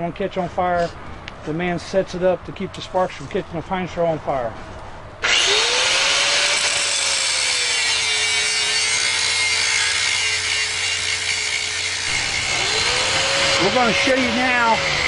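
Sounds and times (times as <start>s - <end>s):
angle grinder cutting metal: 5.2s - 15.0s.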